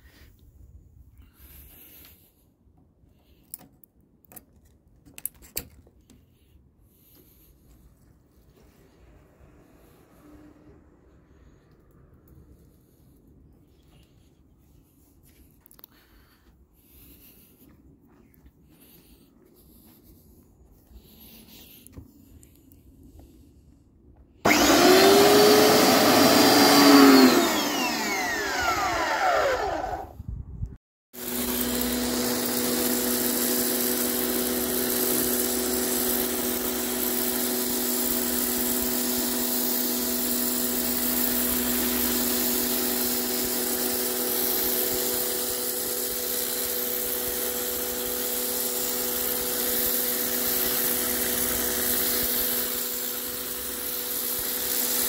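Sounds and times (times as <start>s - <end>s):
pressure washer motor whining: 24.5s - 30.2s, 31.2s - 55.0s
water jet spraying paving: 31.2s - 55.0s.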